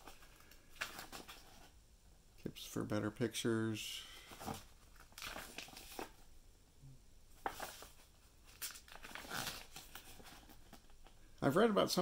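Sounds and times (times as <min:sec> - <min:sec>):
paper pages rustling: 0:00.0 - 0:01.8, 0:04.1 - 0:06.3, 0:07.4 - 0:11.2.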